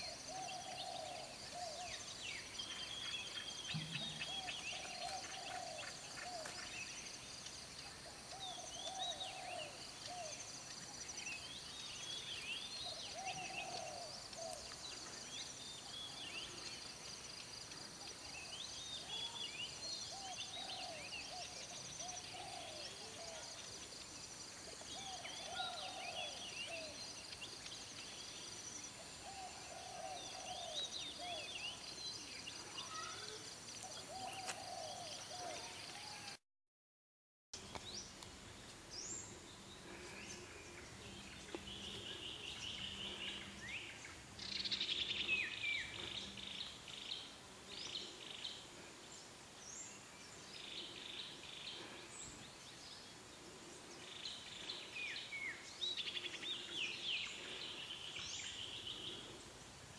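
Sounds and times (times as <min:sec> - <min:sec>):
birds chirping and whistling: 0:00.0 - 0:07.0.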